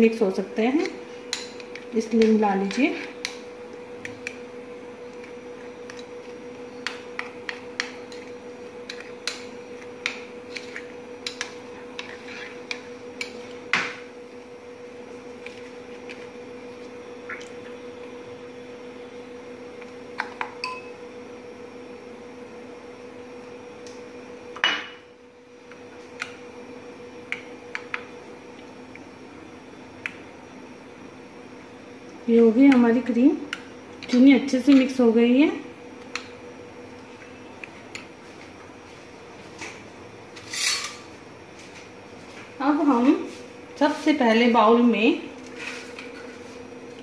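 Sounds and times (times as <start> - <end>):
steady hum: 0.0 - 47.0
spoon clinking in glass bowl: 20.6 - 20.9.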